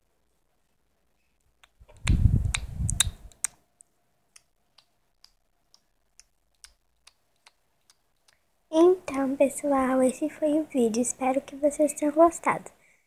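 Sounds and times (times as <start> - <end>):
faint evenly spaced clicks: 2.9 - 9.3.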